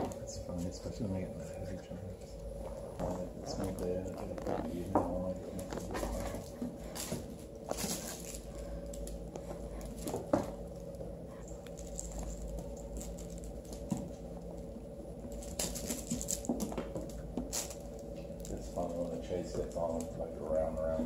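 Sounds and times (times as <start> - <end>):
paws scratching on hardwood floor: 2.6 - 14.4.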